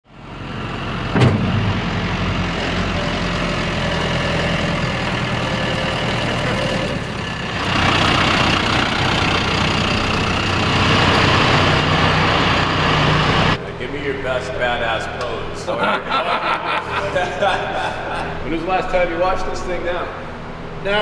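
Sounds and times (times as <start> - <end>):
tractor diesel engine running: 0.1 - 13.8.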